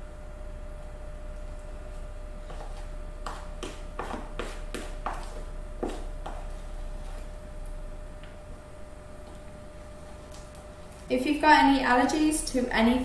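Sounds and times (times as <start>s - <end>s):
dough being stirred: 2.4s - 7.5s.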